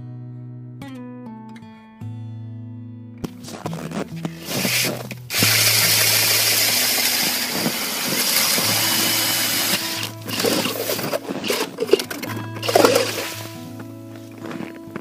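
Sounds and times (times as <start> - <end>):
background music: 3.2 - 15.0
ice auger grinding through ice: 4.4 - 13.7.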